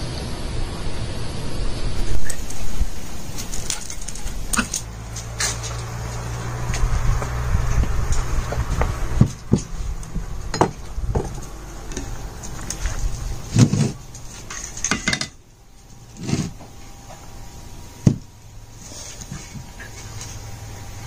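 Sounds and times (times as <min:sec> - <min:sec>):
kitchenware knocks and clinks: 0:10.5 - 0:11.3, 0:14.9 - 0:15.4.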